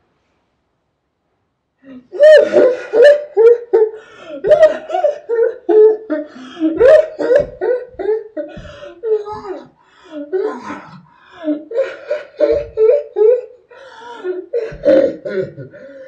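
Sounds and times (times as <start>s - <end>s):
girl laughing loudly: 1.9s - 16.0s.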